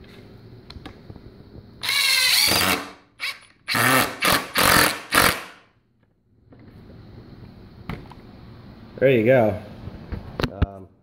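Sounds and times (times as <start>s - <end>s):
impact driver driving screw into wood: 1.8s - 5.6s.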